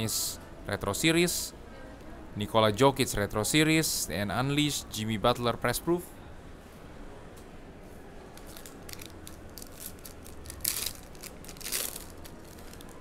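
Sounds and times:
foil ripping: 8.4s - 13.0s
foil wrapper crinkling: 8.4s - 13.0s.

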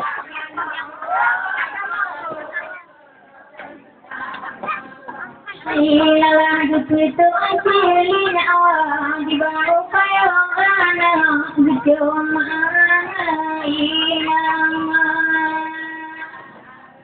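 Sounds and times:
woman singing unaccompanied: 5.5s - 17.0s.

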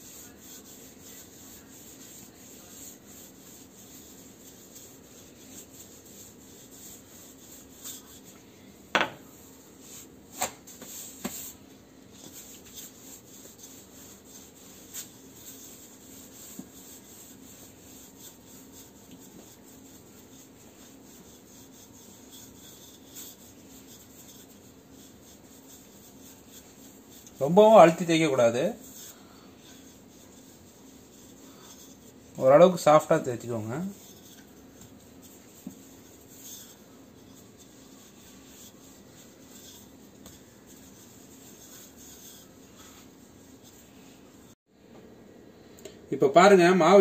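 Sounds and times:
rolling pin rubbing on dough: 0.0s - 44.6s.

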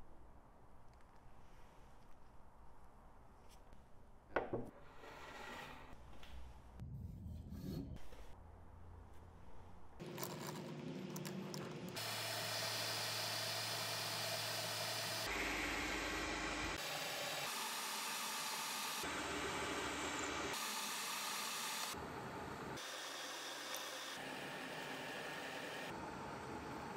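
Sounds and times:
lathe machine hum: 11.0s - 26.9s.

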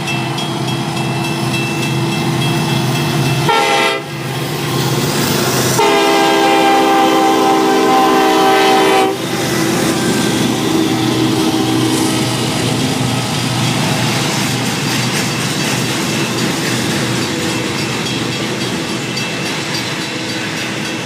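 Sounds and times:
diesel engines droning: 0.0s - 21.0s
train passing: 0.0s - 21.0s
locomotive air horn: 3.4s - 4.2s, 5.7s - 9.3s.

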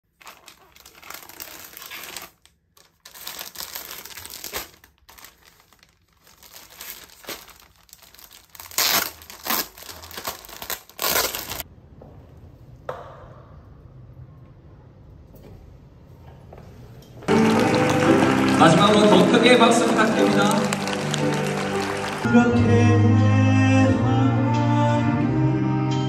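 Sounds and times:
packaging crinkling: 0.1s - 11.6s.

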